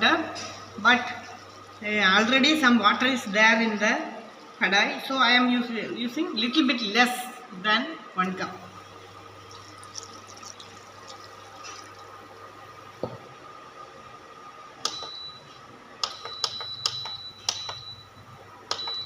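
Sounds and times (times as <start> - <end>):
water poured into a pan: 9.4 - 12.2.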